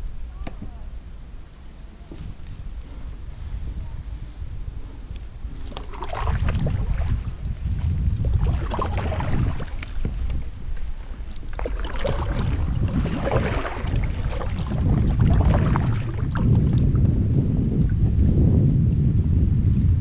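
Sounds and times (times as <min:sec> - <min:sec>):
low wind rumble: 0:00.0 - 0:20.0
paddle splashing in water: 0:05.5 - 0:17.0.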